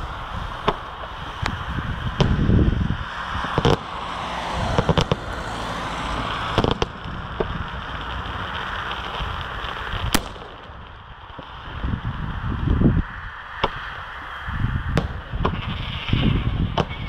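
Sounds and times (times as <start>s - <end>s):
crackle of burning stars: 0.0s - 17.0s
firework shells bursting: 3.2s - 11.9s, 14.9s - 15.8s.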